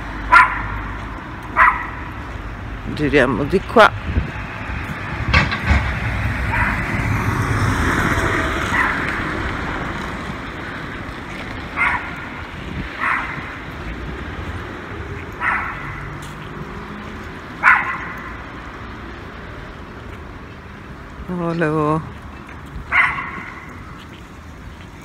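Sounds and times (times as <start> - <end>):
car passing: 0.0 - 25.0
street noise: 0.0 - 25.0
small dogs yapping: 1.6 - 2.0, 6.5 - 6.8, 8.7 - 9.2, 11.7 - 12.3, 13.0 - 13.6, 15.3 - 16.1, 17.6 - 18.3, 22.9 - 23.8.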